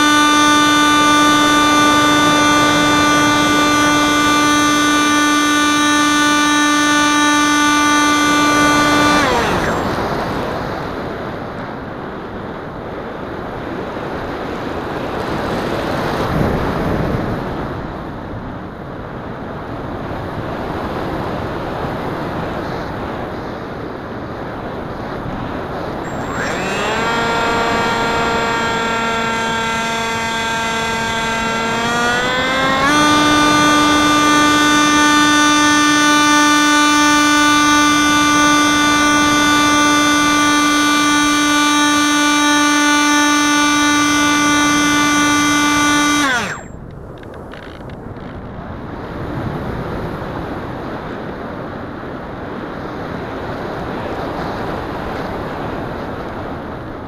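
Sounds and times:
electric motor and propeller whining: 0:00.0 - 0:11.6, 0:24.9 - 0:48.5.

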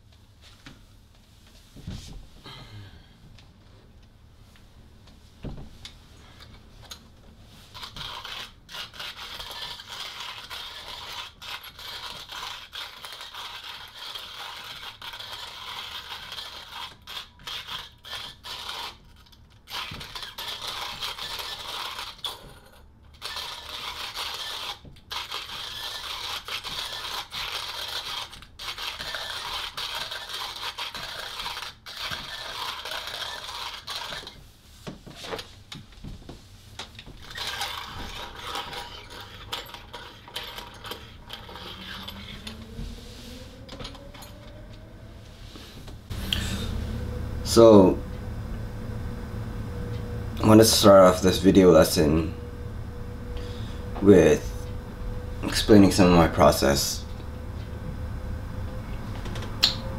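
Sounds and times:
manual coffee grinder grinding beans: 0:07.6 - 0:34.4, 0:37.0 - 0:42.8.

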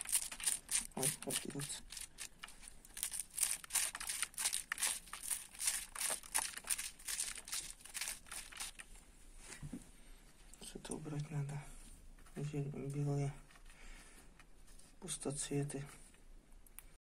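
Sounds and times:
dry crackling of seeds snapping loose: 0:00.0 - 0:08.8.

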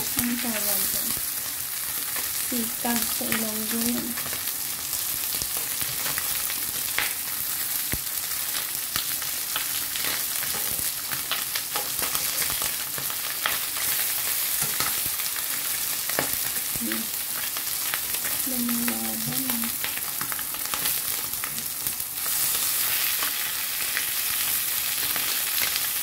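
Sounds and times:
fish sizzling in hot oil: 0:00.0 - 0:26.0.

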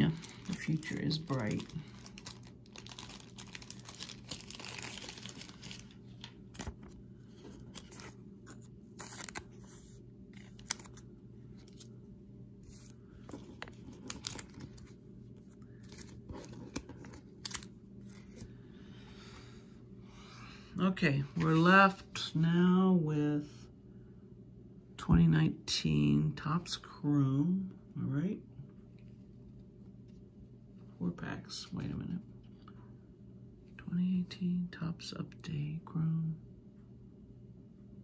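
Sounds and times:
plastic sleeve crinkling: 0:00.0 - 0:11.9, 0:12.7 - 0:15.0.

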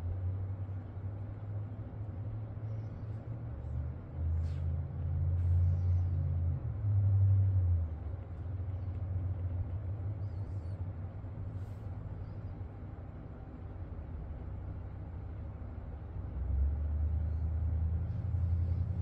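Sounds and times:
low background rumble: 0:00.0 - 0:19.0.

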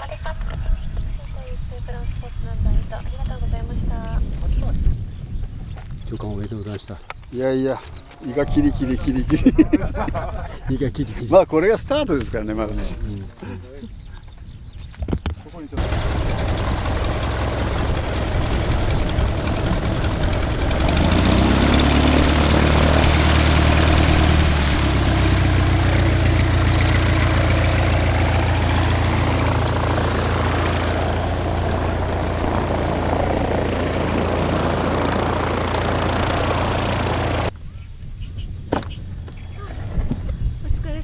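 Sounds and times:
light airplane engine and propeller: 0:15.6 - 0:37.6.

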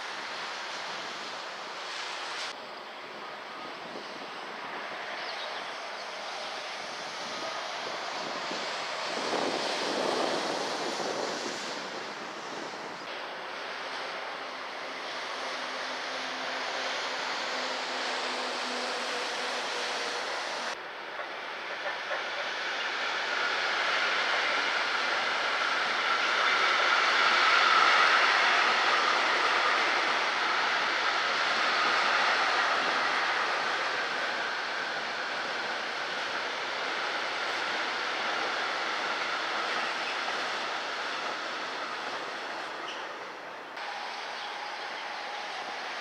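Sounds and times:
train wheels rushing on rail: 0:00.0 - 0:46.0.

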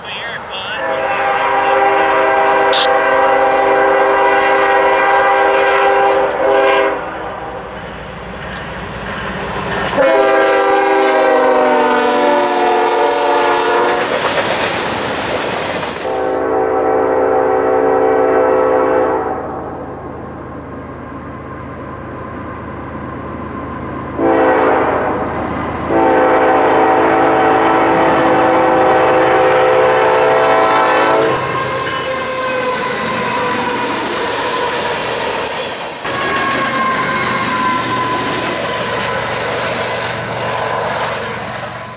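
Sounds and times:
locomotive air horn blasts: 0:00.0 - 0:07.3, 0:10.0 - 0:14.0, 0:16.0 - 0:19.6, 0:24.2 - 0:25.3, 0:25.9 - 0:33.8, 0:36.0 - 0:38.2
train wheels rolling on rails: 0:00.0 - 0:11.6, 0:13.3 - 0:16.4, 0:20.7 - 0:41.9.

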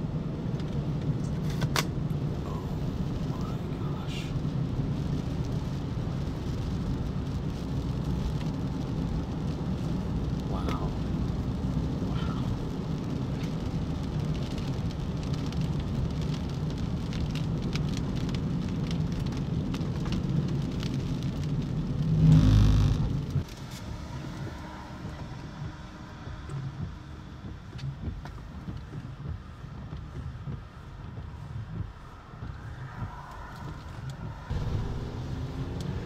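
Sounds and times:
vehicle rumble: 0:00.0 - 0:36.0
rain ticks: 0:00.4 - 0:23.7, 0:24.4 - 0:36.0
loud whoosh: 0:22.0 - 0:26.2, 0:32.4 - 0:36.0.

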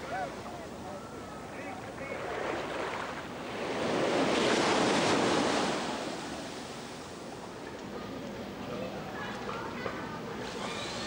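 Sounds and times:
surf breaking on sandy beach: 0:02.2 - 0:07.0.

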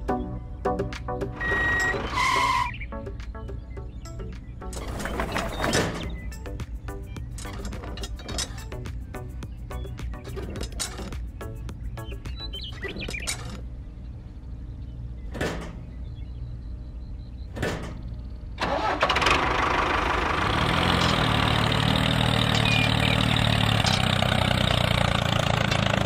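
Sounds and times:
tractor engine starting and running: 0:01.3 - 0:02.7, 0:04.6 - 0:09.0, 0:17.6 - 0:26.0.

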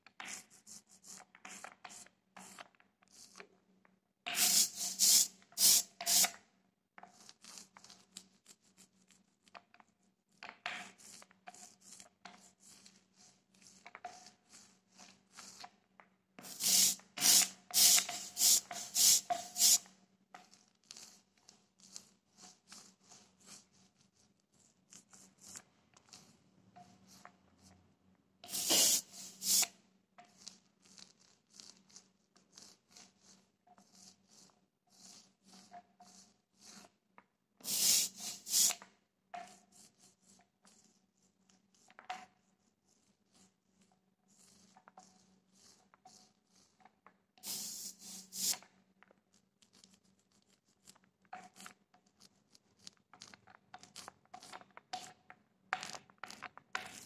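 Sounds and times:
ink roller rasping strokes: 0:04.3 - 0:06.4, 0:10.8 - 0:15.7, 0:16.4 - 0:27.8, 0:28.4 - 0:37.0, 0:37.6 - 0:38.8, 0:39.4 - 0:48.6.

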